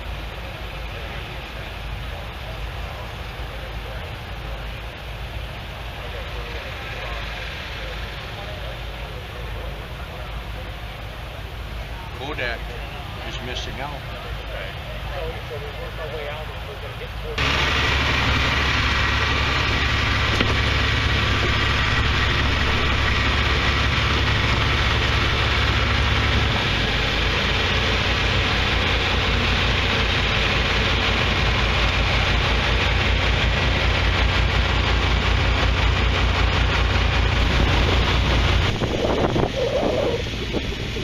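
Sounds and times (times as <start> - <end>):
tractor engine running: 0.0 - 41.0
wind buffeting microphone: 37.0 - 41.0.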